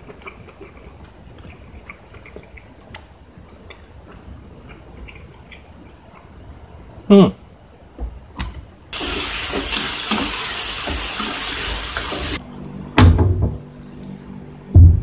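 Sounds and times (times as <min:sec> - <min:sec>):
food sizzling in frying pan: 0:09.0 - 0:12.4
thump on cutting board: 0:13.0 - 0:13.6.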